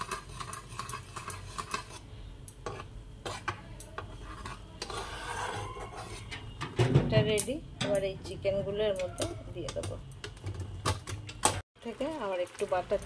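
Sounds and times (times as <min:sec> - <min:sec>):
sauce boiling: 0:00.0 - 0:05.3, 0:08.7 - 0:13.0
metal spatula scraping a pan: 0:00.0 - 0:06.8.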